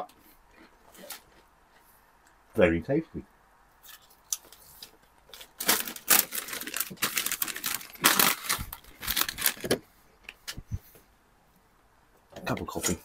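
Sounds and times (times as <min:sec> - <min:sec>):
crisp packets crinkling: 0:04.0 - 0:09.8.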